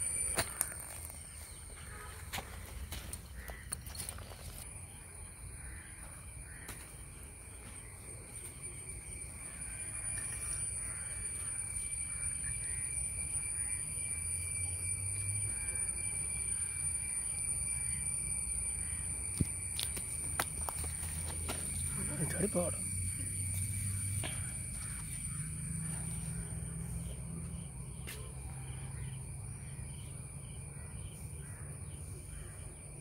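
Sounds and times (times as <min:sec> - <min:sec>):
crows cawing: 0:01.8 - 0:04.5, 0:05.5 - 0:07.0, 0:09.5 - 0:12.8, 0:20.6 - 0:26.8
high-pitched whine: 0:07.2 - 0:27.6.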